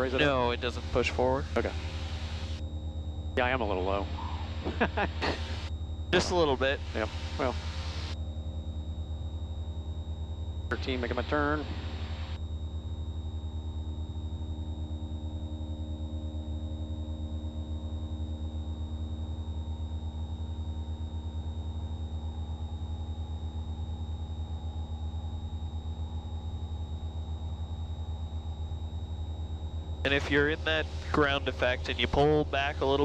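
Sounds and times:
light aircraft engine droning: 0.0 - 2.6, 3.4 - 8.6, 10.4 - 12.4, 24.9 - 33.0.

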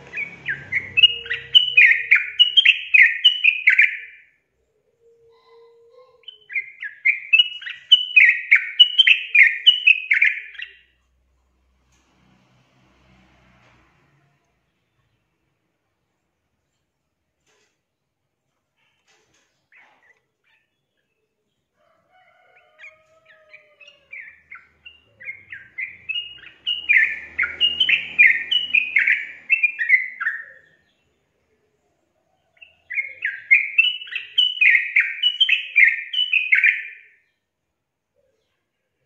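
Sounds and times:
bird singing quick falling notes: 0.0 - 4.1, 24.2 - 30.8.

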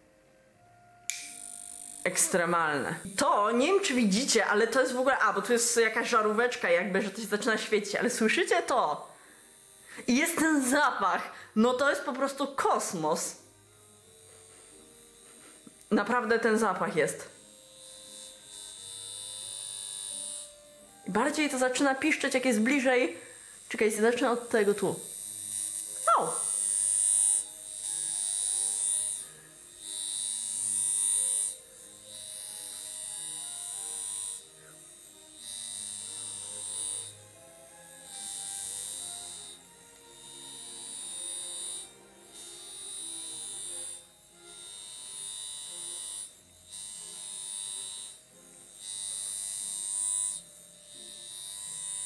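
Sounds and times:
electrotherapy comb buzzing: 0.6 - 52.0
high-pitched electrical buzzing squeal: 24.6 - 26.6
high-pitched electrode squeal: 25.9 - 26.6.

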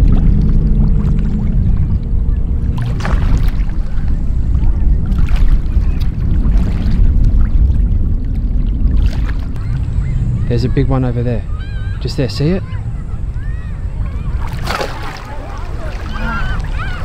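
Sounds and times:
wind rumble on microphone: 0.0 - 17.0
water washing on rocks: 14.4 - 16.8.

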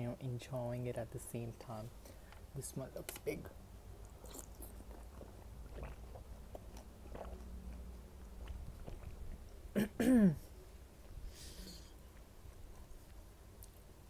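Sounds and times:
chewing with mouth closed: 4.0 - 9.7.

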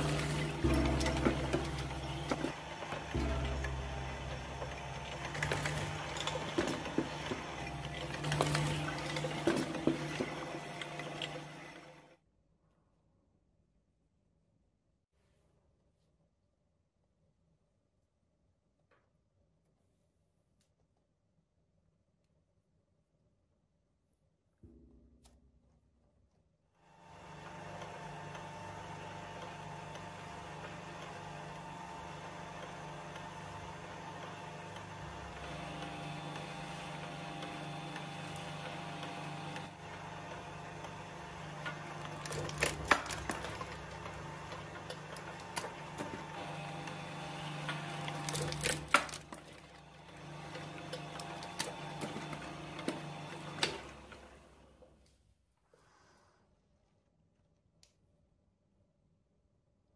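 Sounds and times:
shredder mechanical hum: 0.0 - 12.2, 26.8 - 55.1.

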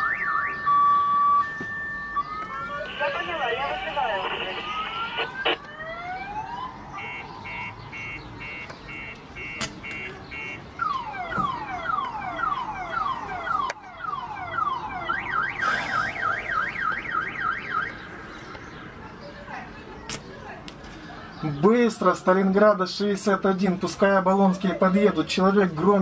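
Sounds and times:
car alarm siren: 0.0 - 18.1.

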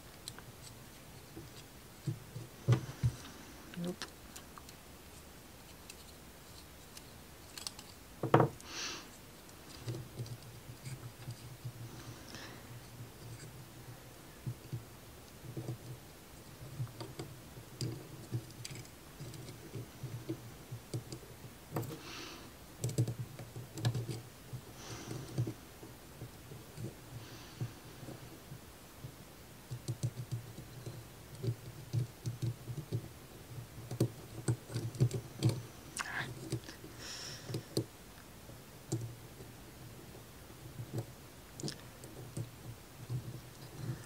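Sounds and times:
plywood parts clicking and tapping: 5.6 - 8.6, 9.5 - 11.8, 14.4 - 22.0, 22.8 - 25.6, 29.0 - 35.6.

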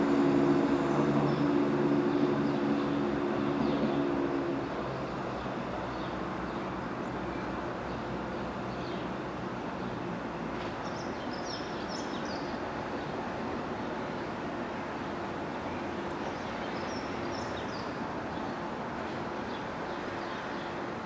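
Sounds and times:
diesel train engine rumble: 0.0 - 10.8
birds chirping: 10.7 - 20.9.

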